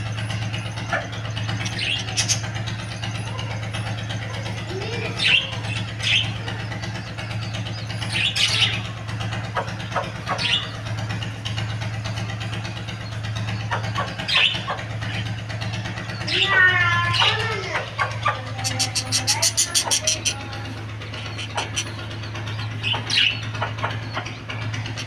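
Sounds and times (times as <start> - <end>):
steady low hum: 0.0 - 25.0
budgerigar chirps: 13.7 - 14.8, 18.0 - 20.4, 21.2 - 22.0.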